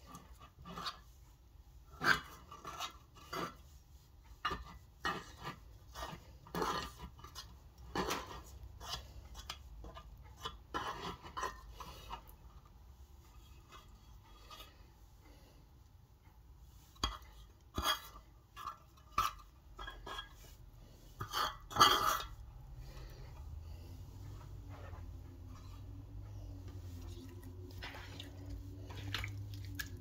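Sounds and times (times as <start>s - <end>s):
wet slime squishing: 25.6s - 30.0s.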